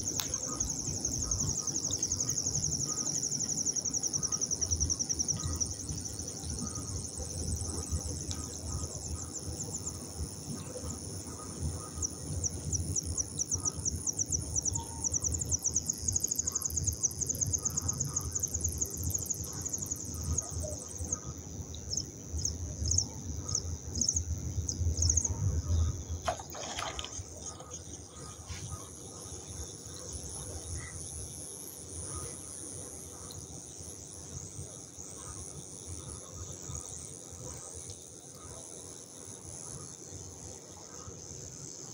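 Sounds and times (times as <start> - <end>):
clay fizzing in water: 26.3 - 27.8.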